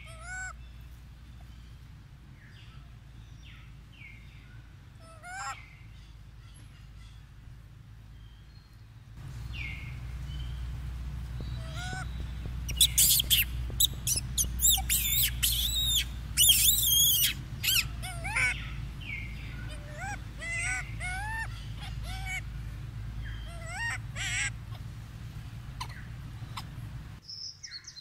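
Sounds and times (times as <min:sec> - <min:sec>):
baby monkey screeching: 0:00.0 - 0:00.5, 0:05.0 - 0:05.6, 0:11.6 - 0:22.5, 0:23.2 - 0:24.9, 0:25.8 - 0:26.8.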